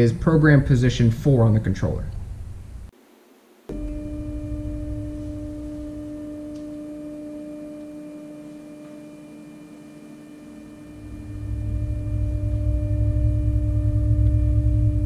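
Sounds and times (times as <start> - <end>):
stepper motor whine: 3.7 - 15.0.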